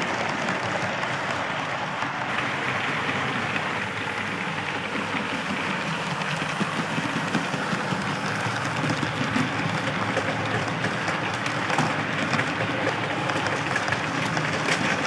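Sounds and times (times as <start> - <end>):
model train wheels rattling: 0.0 - 15.0.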